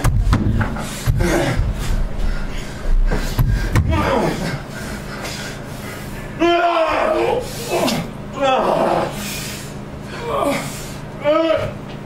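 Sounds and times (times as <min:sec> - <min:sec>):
thuds of bodies hitting floor: 0:00.1 - 0:04.4
people grunting and gasping: 0:00.4 - 0:11.8.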